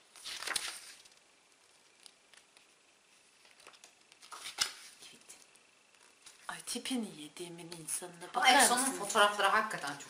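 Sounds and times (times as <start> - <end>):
paper pages rustling: 0.0 - 6.5.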